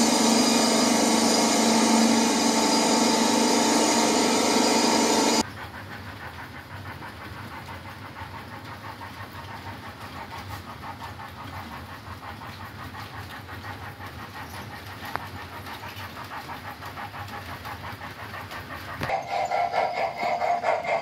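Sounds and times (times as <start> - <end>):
steady low hum: 0.0 - 5.4
model steam locomotive chuffing: 0.0 - 21.0.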